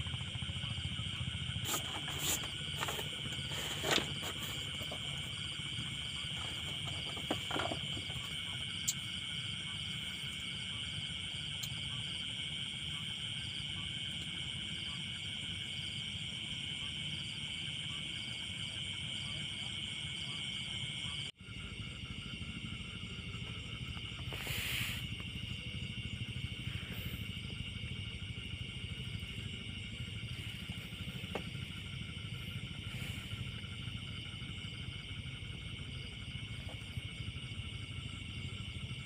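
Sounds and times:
low steady rumble: 0.0 - 18.1, 20.2 - 39.0
insects chirping at night: 0.0 - 39.0
knocks and rustles: 1.6 - 8.6.

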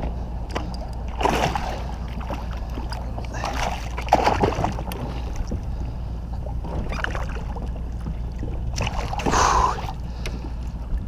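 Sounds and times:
steady low hum: 0.0 - 11.0
fish splashing in water: 3.3 - 4.9.

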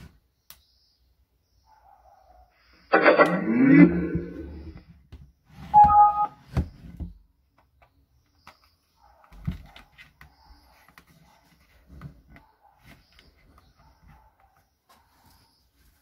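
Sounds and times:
short electronic tone: 5.8 - 6.3.

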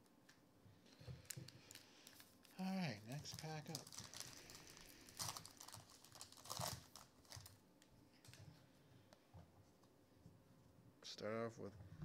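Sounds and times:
plastic wrapper tearing and crinkling: 1.2 - 7.6.

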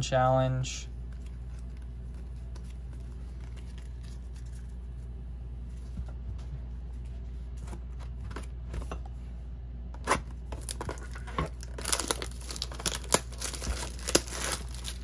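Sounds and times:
foil wrapper crinkling: 10.5 - 15.0
foil wrapper tearing: 10.6 - 15.0.

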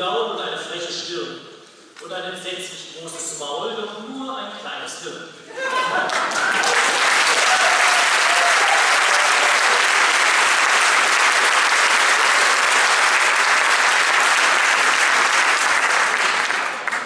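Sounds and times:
audience applauding: 5.6 - 17.0.

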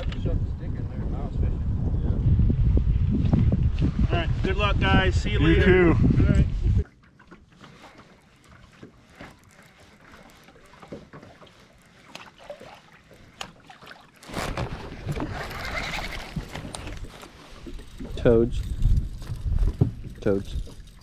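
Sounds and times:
rustling of fishing rod handling: 6.7 - 21.0.

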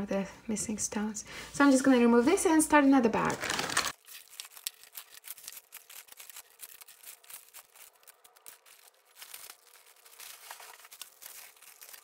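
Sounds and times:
plastic bag rustling: 3.1 - 12.0.

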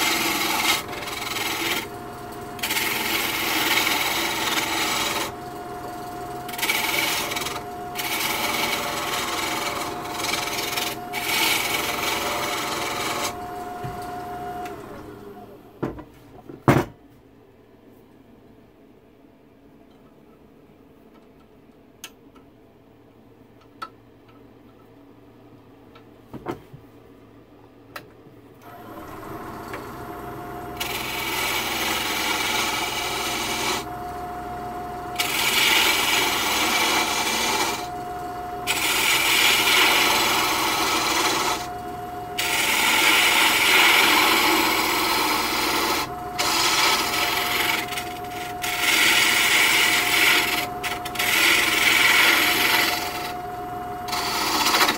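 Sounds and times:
tool rasping on spinning wood: 0.0 - 14.8, 28.6 - 54.9
wood lathe humming: 0.0 - 15.6, 28.6 - 54.9.

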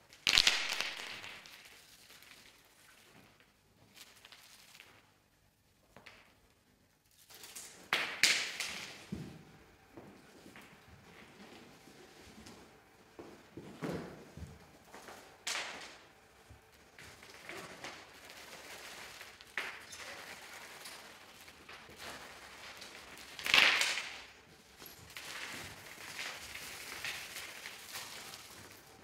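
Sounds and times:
small loose pieces scattering: 0.1 - 2.9, 14.9 - 29.0.

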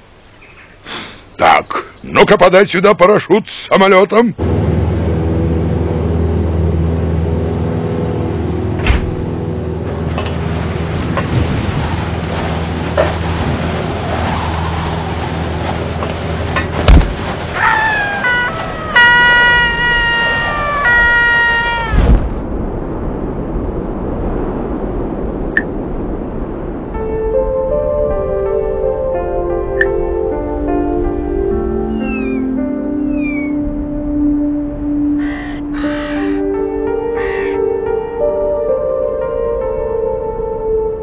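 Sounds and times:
jet engines droning: 4.4 - 39.0
hatch opening clunk: 8.8 - 9.2
thump: 8.8 - 9.2, 16.8 - 17.2, 21.9 - 22.4
high falling cartoon cry: 17.6 - 22.2, 35.2 - 36.4
soft music: 26.9 - 41.0.

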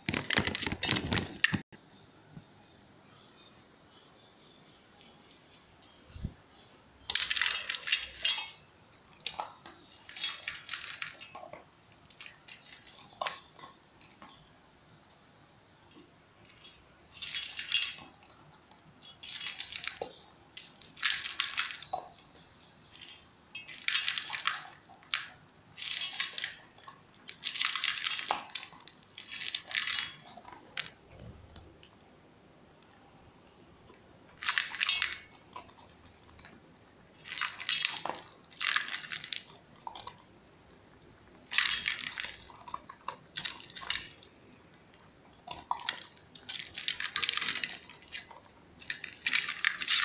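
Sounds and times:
pellets clinking against metal bowl: 7.0 - 11.5
dog crunching dry kibble: 37.2 - 40.2, 41.3 - 44.4, 45.0 - 50.0.

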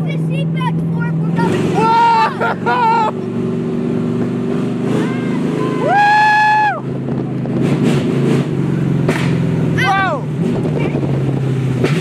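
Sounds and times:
monster truck engine running: 0.0 - 12.0
person whooping: 1.8 - 3.1, 5.6 - 6.8.

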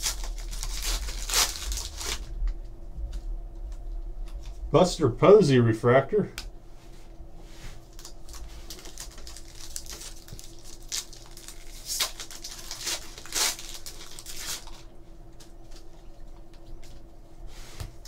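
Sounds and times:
foil pack tearing: 0.0 - 2.4, 7.9 - 14.9
foil wrapper crinkling: 0.0 - 2.7, 7.8 - 17.0.

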